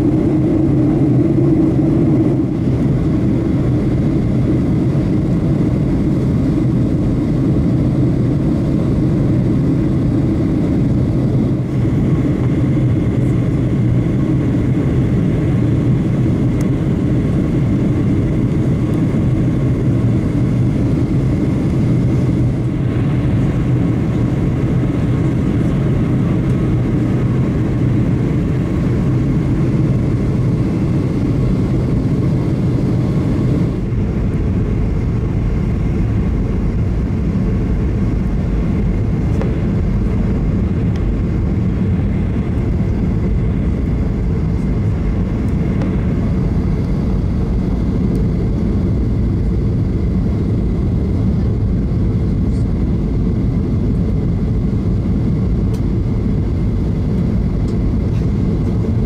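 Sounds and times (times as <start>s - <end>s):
jet engine rumble: 0.0s - 59.0s.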